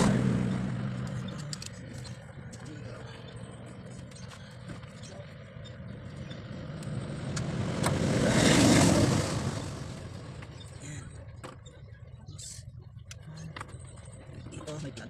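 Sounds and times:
road vehicle passing by: 0.0 - 12.1.

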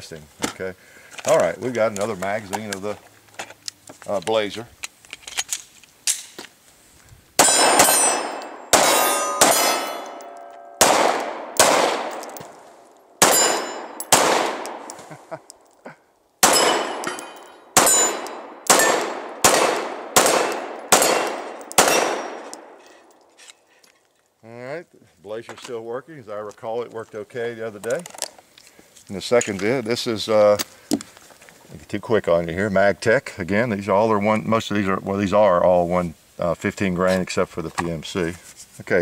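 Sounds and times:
pistol shots: 7.4 - 12.5, 13.2 - 14.9, 16.4 - 22.8
bullets ringing on steel targets: 7.4 - 12.6, 13.2 - 15.0, 16.4 - 22.8.

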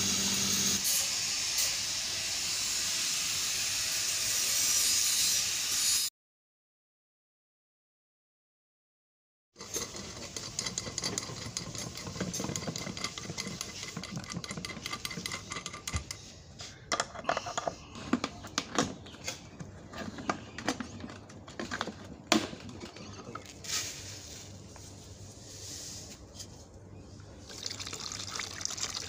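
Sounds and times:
metallic clicks of nut turning: 9.6 - 16.3
water pouring into plastic bucket: 27.5 - 29.0.

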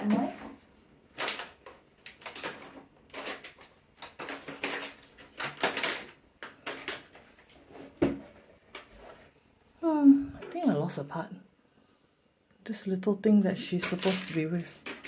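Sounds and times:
plastic packaging rustling: 0.0 - 9.3, 13.6 - 15.0
toy pieces clicking: 13.7 - 15.0.

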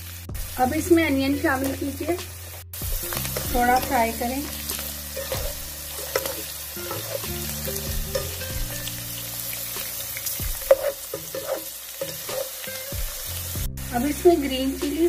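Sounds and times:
food sizzling in hot oil: 0.0 - 15.0
spatula scraping a pan: 3.2 - 8.4, 10.4 - 13.1.

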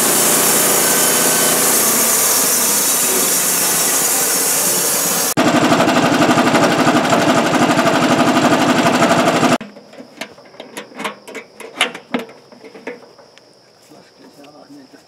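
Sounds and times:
sawmill engine and blade running: 0.0 - 9.6.

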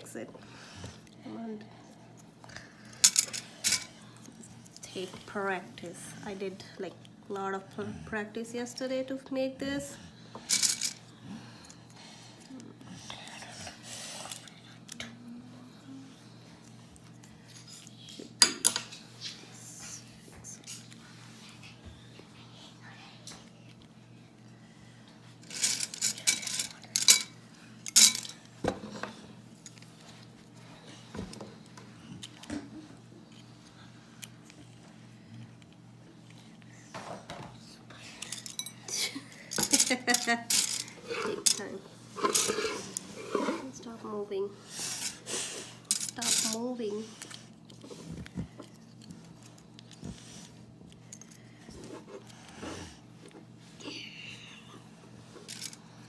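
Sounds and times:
low steady hum: 0.0 - 56.0
plastic pieces clicking and clattering: 39.5 - 41.7.

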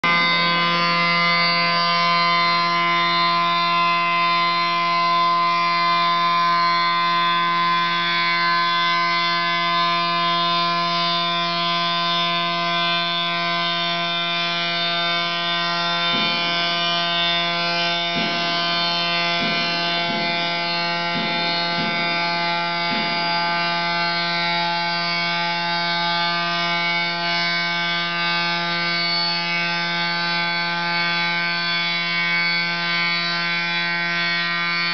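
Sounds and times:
tool cutting stone: 9.8 - 25.6.

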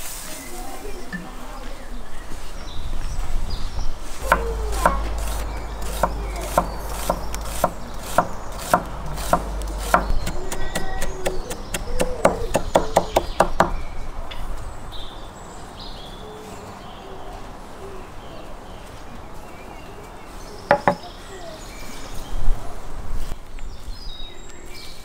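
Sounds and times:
knife chopping on wooden board: 4.3 - 13.7.

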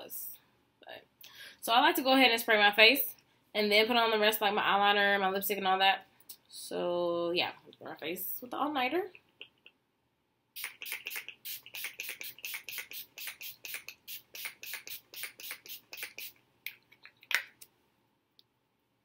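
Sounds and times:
spray bottle hissing sprays: 10.6 - 16.4.

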